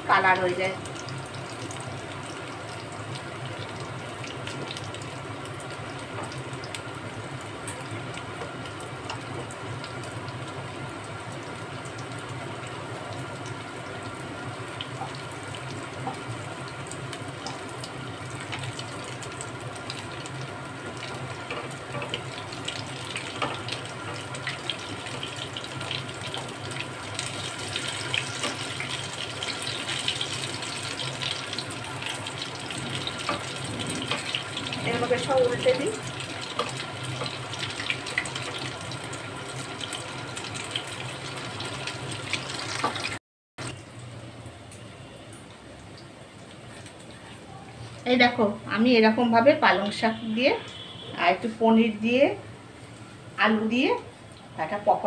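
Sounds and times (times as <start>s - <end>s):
food deep-frying in hot oil: 0.0s - 55.0s.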